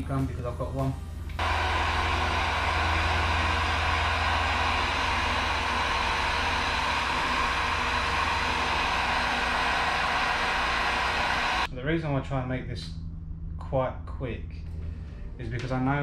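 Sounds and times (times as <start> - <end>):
heat gun whirring: 1.4 - 11.7.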